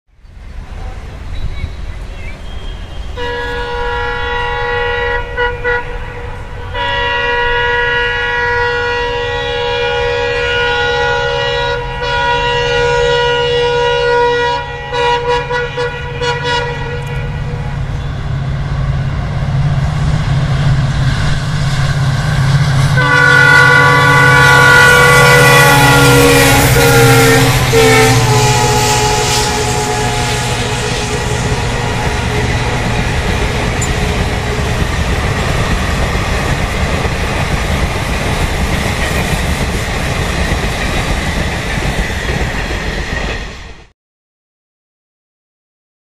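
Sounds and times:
locomotive horn blasts: 2.6s - 18.3s, 22.9s - 34.7s
locomotive engine rumble: 15.9s - 43.1s.

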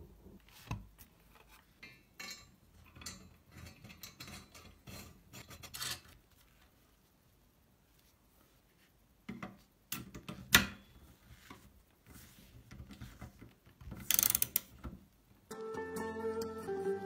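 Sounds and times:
ratchet wrench clicking: 14.1s - 14.7s.

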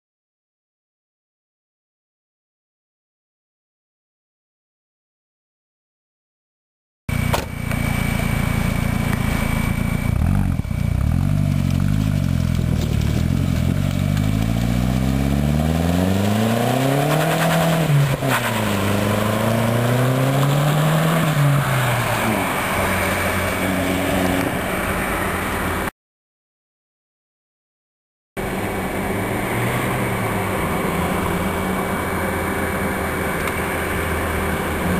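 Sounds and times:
car engine accelerating: 7.1s - 25.9s, 28.4s - 34.9s.

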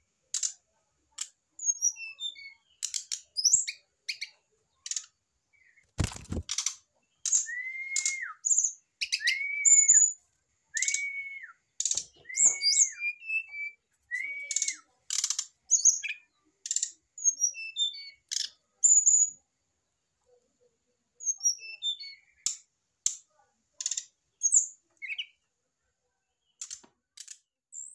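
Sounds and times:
bird whistling: 7.3s - 10.2s, 10.8s - 11.6s, 12.2s - 14.8s.

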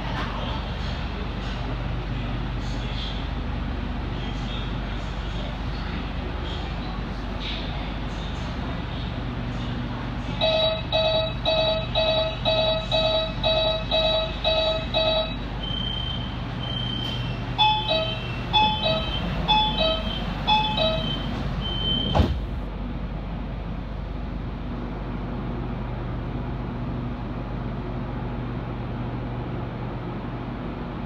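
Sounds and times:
low hum of train: 0.0s - 31.0s
falling two-note beeps: 10.4s - 22.1s
short warning beeps: 10.4s - 22.2s
sharp thump: 22.1s - 22.6s.

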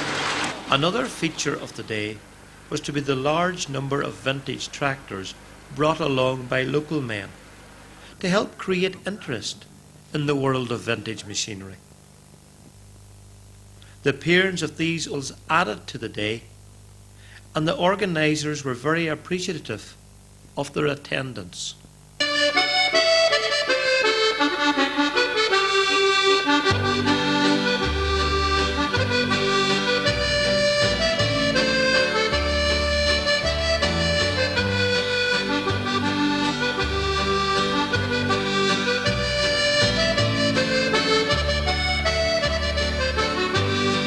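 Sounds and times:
instrumental background music: 22.2s - 44.0s.

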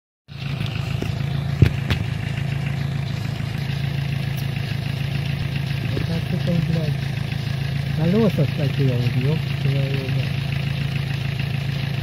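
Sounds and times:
engine idling: 0.3s - 12.0s.

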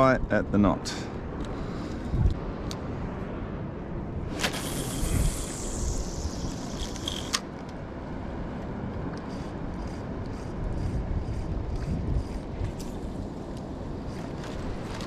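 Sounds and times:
water around a boat: 0.0s - 15.0s
wind: 0.0s - 15.0s
fishing line hissing off reel: 4.4s - 7.4s
sharp reel click: 4.5s - 7.4s
reel ticking while winding: 9.3s - 12.4s.

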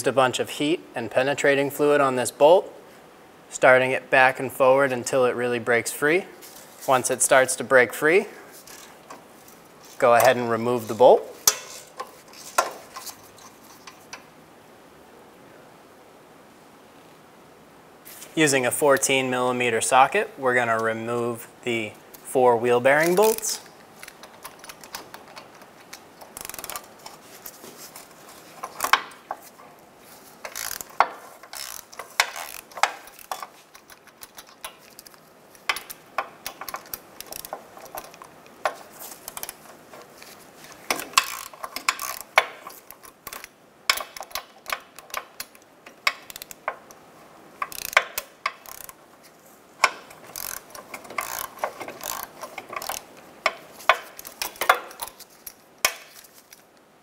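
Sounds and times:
hand ratchet clicking: 11.4s - 14.2s, 23.0s - 29.5s, 30.4s - 47.0s, 47.6s - 49.0s, 49.8s - 56.1s.

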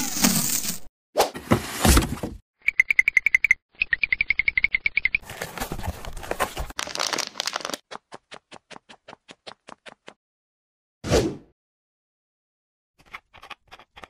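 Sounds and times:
plastic wrap crinkling: 5.4s - 7.8s.

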